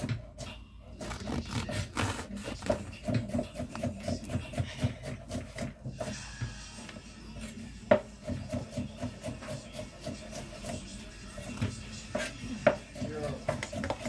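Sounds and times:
knife sawing through crust: 1.0s - 6.2s, 8.3s - 14.0s.

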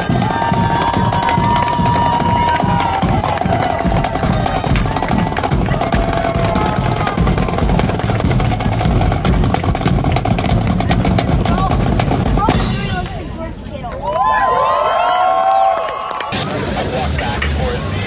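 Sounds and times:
bass drums: 0.0s - 13.7s.

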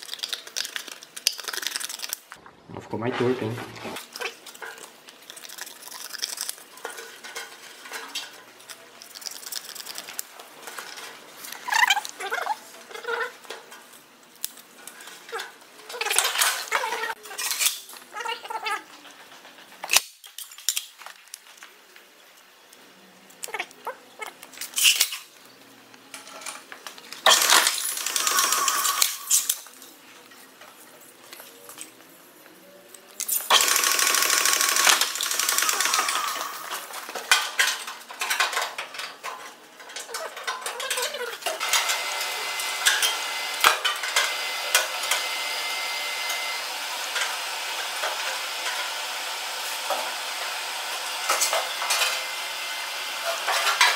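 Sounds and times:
guillotine shear noise: 3.2s - 20.1s, 26.1s - 30.3s, 33.2s - 53.9s.

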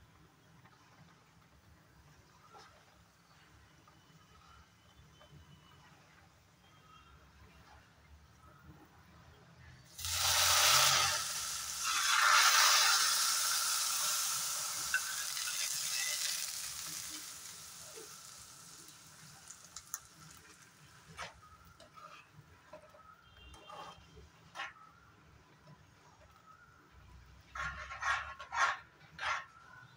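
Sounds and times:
hot fat sizzling: 9.9s - 22.1s
spoon scraping and stirring pot: 10.0s - 24.8s.

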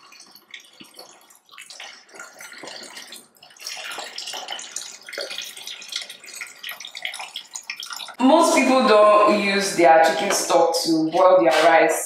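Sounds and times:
liquid pouring into metal pot: 0.0s - 9.0s.

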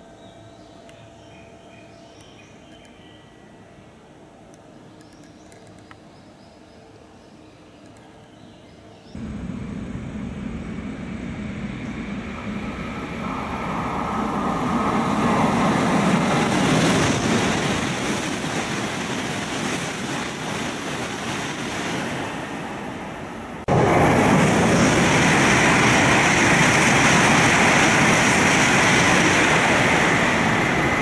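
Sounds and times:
high-speed train passing: 9.2s - 31.0s.

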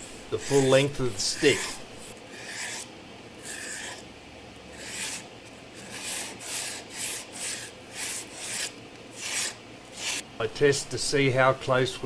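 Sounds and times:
steel pin rasping on abrasive paper: 0.0s - 4.0s, 4.7s - 5.2s, 5.8s - 10.2s.

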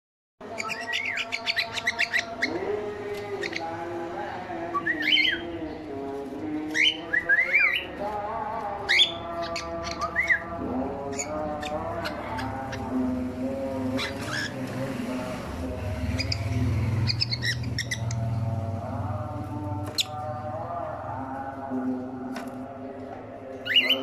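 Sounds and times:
cockatiels chirping: 0.6s - 2.6s, 13.9s - 14.6s, 16.2s - 18.2s.

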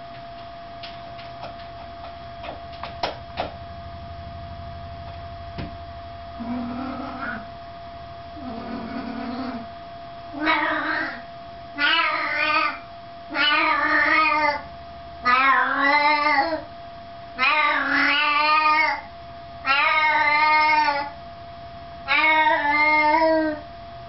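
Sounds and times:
cat meowing loudly: 10.4s - 14.6s, 19.6s - 21.1s, 22.1s - 23.6s.

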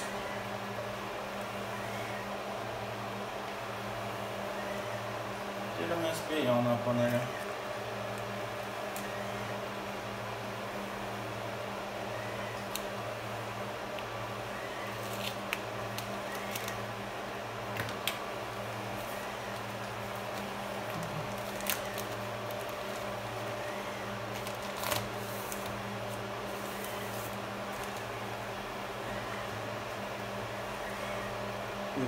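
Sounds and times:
steady low hum: 0.0s - 32.0s
plastic rustling: 18.9s - 28.1s.

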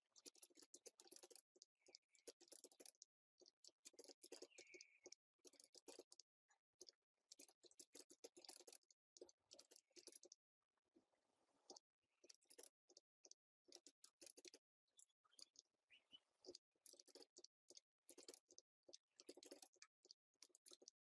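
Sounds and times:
faint keyboard typing: 0.1s - 10.4s, 11.7s - 15.6s, 16.4s - 21.0s.

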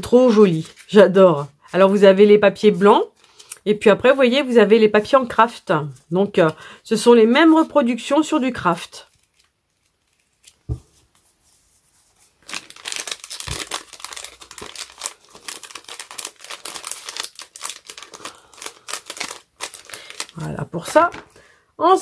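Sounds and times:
packaging crinkling: 9.0s - 10.7s, 12.2s - 21.3s.

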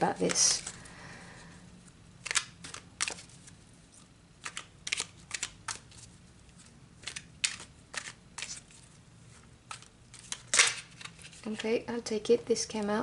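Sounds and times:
cards snapping while shuffled: 2.2s - 3.4s, 4.4s - 6.0s, 7.0s - 8.7s, 9.7s - 11.6s.

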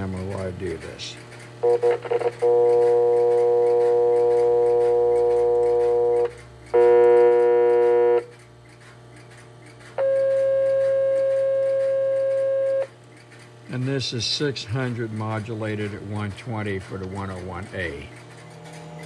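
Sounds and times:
distorted buzzy dial tone: 1.6s - 8.3s, 10.0s - 13.0s.

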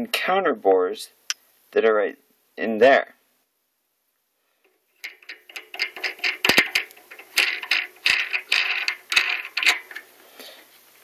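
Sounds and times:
metal nut scraping and clicking: 5.0s - 10.1s.

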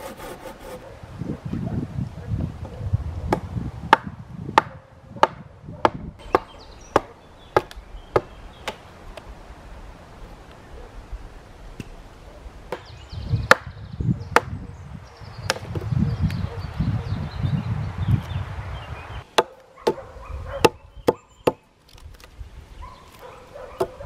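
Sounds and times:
hatchet chopping log: 3.3s - 8.8s, 13.5s - 14.6s, 19.3s - 20.0s.

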